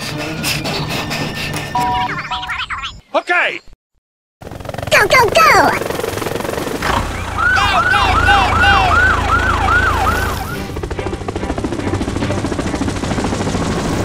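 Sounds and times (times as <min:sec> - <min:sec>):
helicopter rotor chop: 0:04.4 - 0:14.0
police siren wailing: 0:07.0 - 0:10.8.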